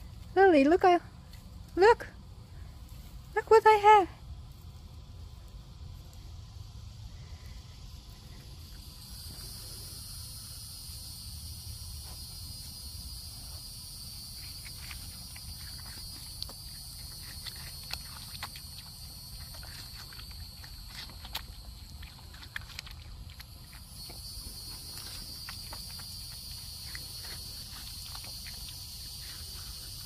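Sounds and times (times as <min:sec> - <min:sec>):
insects droning: 0:00.0 - 0:30.0
deer chewing watermelon: 0:08.0 - 0:30.0.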